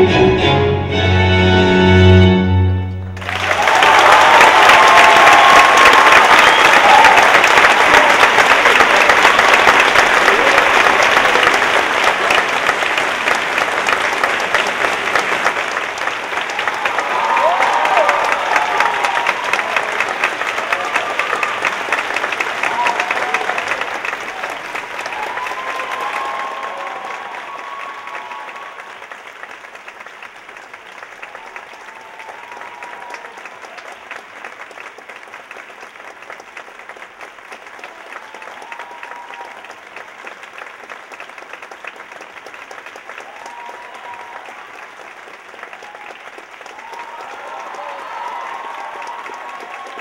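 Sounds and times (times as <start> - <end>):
audience applauding: 3.0 - 50.0.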